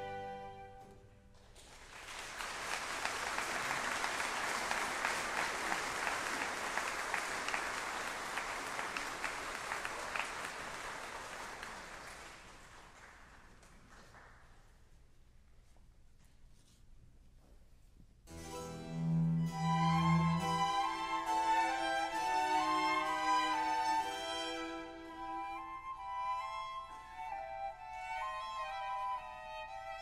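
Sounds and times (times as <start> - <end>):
audience applauding: 1.3 - 14.6
string and harpsichord chord: 18.3 - 25.4.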